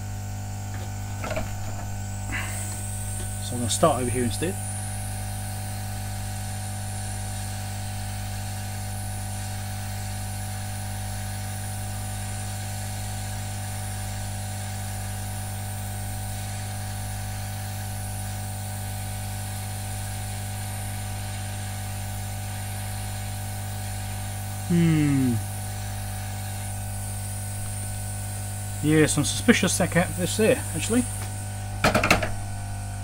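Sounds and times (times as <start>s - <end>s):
heat gun blowing hiss: 1.2s - 32.2s.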